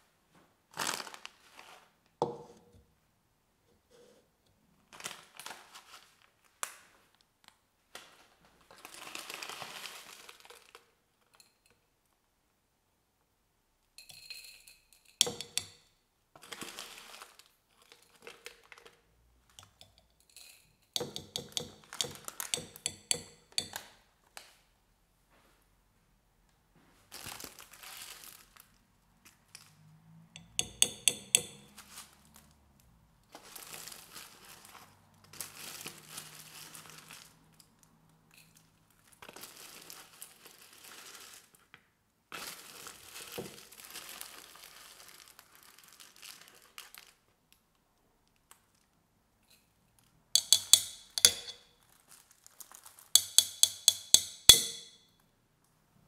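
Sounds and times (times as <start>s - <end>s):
foil packets crinkling: 0.7s - 1.9s, 4.9s - 6.9s, 7.9s - 11.0s, 16.4s - 19.0s, 27.1s - 28.8s, 33.3s - 37.5s, 39.0s - 41.7s, 42.3s - 47.4s, 51.7s - 53.1s
spoon clinking against glass: 14.0s - 15.8s, 19.8s - 23.8s, 30.4s - 31.7s, 50.4s - 51.6s, 53.2s - 55.0s.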